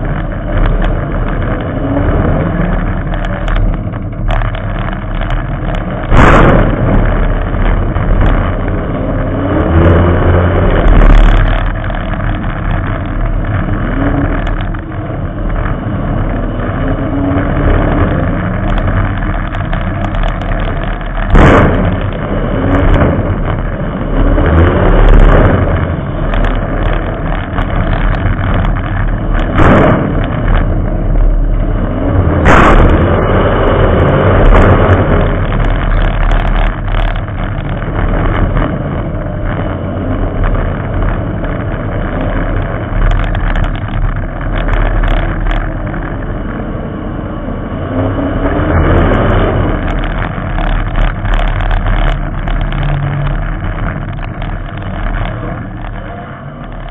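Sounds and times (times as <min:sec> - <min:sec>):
race car engine revving: 0:00.0 - 0:56.9.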